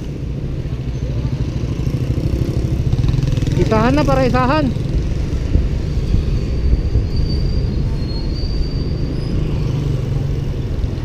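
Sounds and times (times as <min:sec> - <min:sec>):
wind buffeting microphone: 0:04.8 - 0:09.0.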